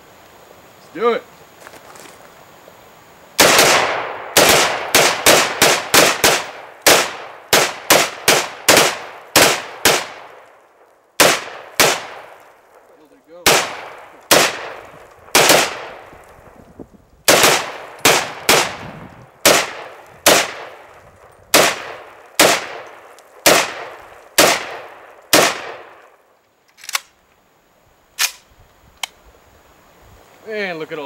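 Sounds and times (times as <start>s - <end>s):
rifle shots echoing: 3.4s - 10.6s, 11.2s - 16.2s, 17.3s - 26.2s
faint sharp cracks: 3.4s - 27.4s, 28.2s - 29.2s.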